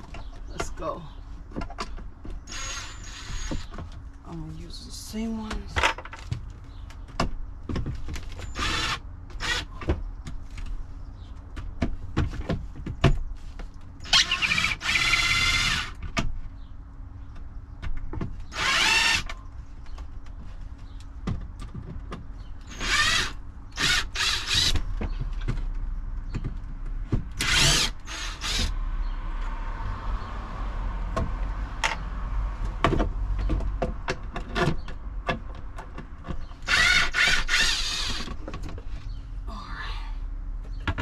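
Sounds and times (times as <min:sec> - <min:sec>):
power drill running: 0:02.5 - 0:03.5, 0:08.5 - 0:09.7, 0:14.1 - 0:16.0, 0:18.5 - 0:19.3, 0:22.7 - 0:24.8, 0:27.4 - 0:28.7, 0:36.7 - 0:38.3
handling clicks and knocks: 0:31.1 - 0:36.8.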